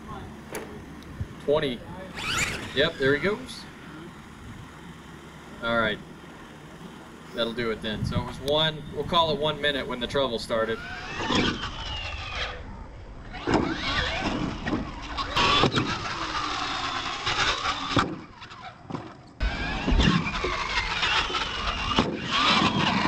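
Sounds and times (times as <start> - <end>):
toy truck motor whining: 0.2 - 23.0.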